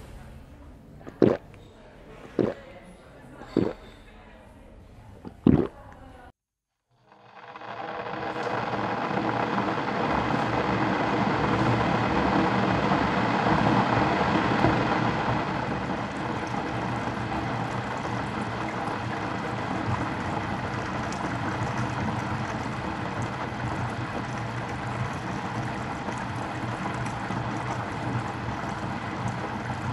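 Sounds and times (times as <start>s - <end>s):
electric kettle heating water: 6.9s - 29.9s.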